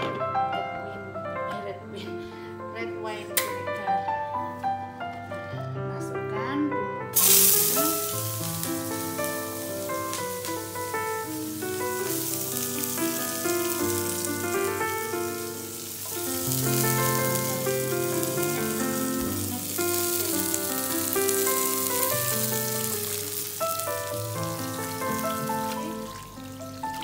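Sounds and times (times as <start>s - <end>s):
background music: 0.0s - 27.0s
garlic sizzling in oil: 7.2s - 27.0s.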